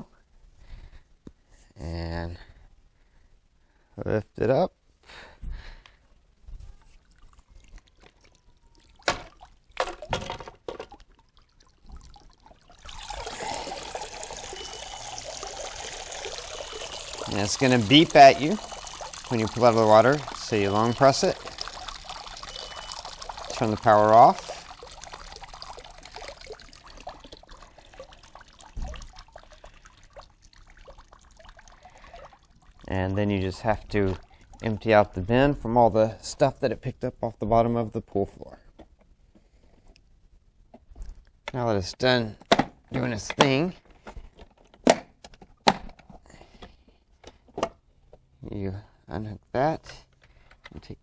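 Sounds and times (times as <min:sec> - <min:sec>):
water pouring and splashing: 0:06.8 - 0:35.2.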